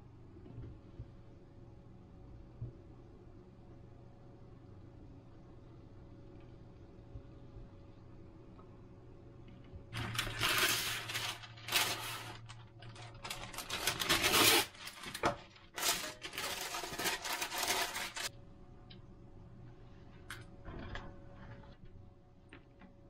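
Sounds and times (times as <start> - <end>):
paper crinkling and tearing: 9.9 - 18.3.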